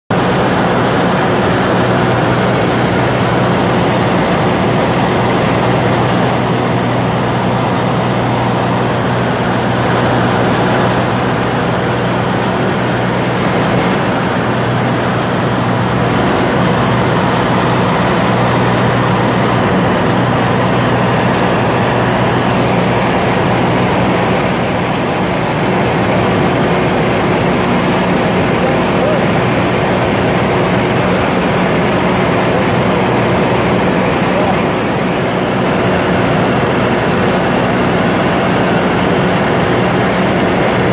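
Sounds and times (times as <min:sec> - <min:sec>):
propeller aircraft engine drone: 0:00.1 - 0:40.9
rushing air noise: 0:09.8 - 0:27.2.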